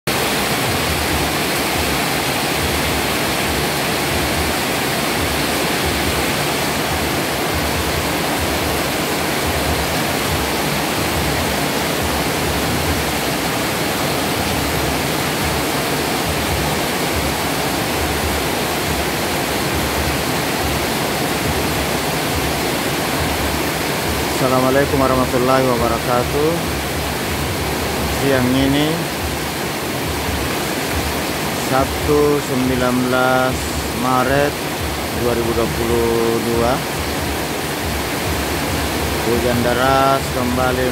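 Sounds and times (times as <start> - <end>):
heavy rain pouring: 0.1 - 40.9.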